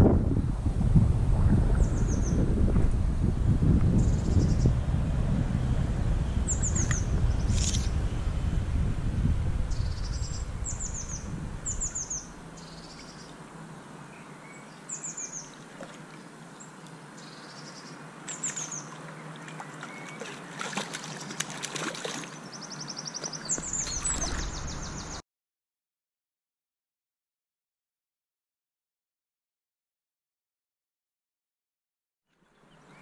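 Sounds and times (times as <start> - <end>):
low rumble: 0.0 - 12.8, 23.6 - 25.2
small songbirds singing: 6.1 - 8.9, 9.7 - 25.2.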